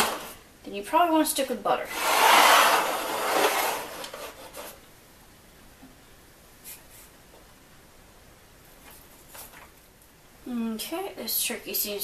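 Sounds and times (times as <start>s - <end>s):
faint rubbing: 1.9s - 4.8s.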